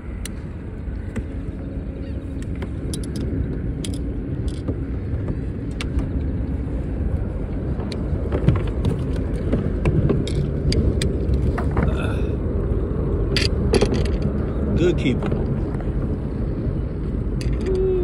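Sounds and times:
steady low rumble: 0.0s - 18.0s
gear clicking and knocking: 2.4s - 6.4s, 7.7s - 12.0s, 13.3s - 15.8s.

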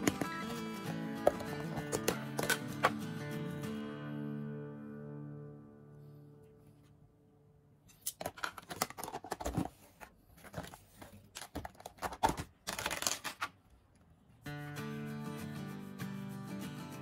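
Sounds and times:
packet crinkling and tearing: 10.5s - 13.6s.

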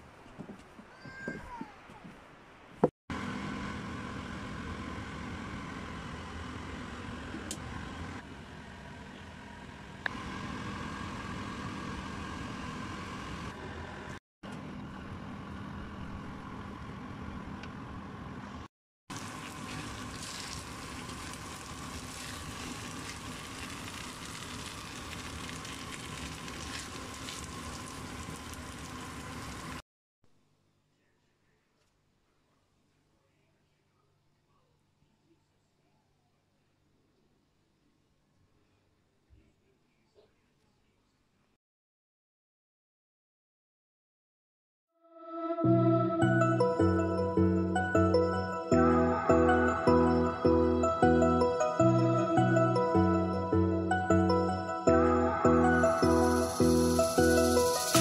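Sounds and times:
risotto sizzling in a pan: 19.1s - 29.8s, 56.2s - 58.0s.

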